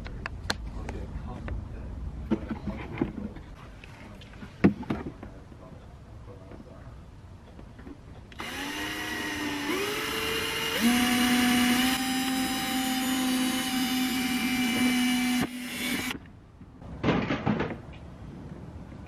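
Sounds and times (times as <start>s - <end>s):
cordless drill whining: 8.4s - 16.2s.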